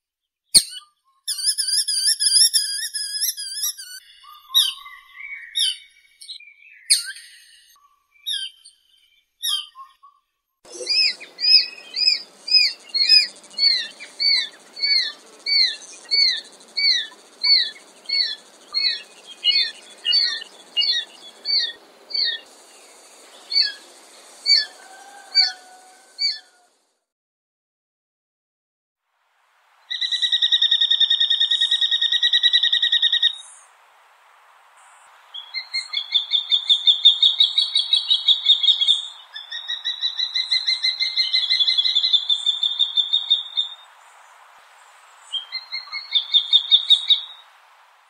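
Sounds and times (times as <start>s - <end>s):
hawk calling high notes: 10.7s - 26.6s.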